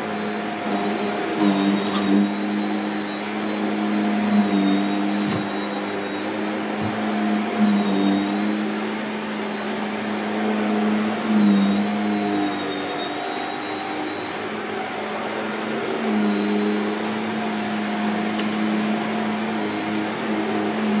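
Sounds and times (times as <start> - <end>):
vacuum cleaner on carpet: 0.0 - 21.0.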